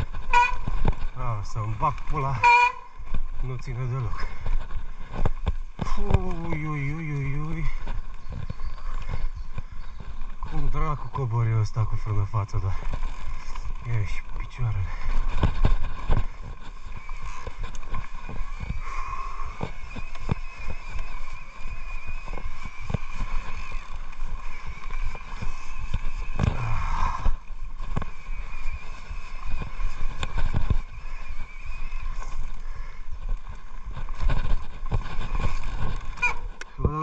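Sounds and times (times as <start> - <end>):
bike knocks and rattles: 0.0 - 1.2, 4.2 - 10.5
tyre and wind noise: 0.0 - 37.0.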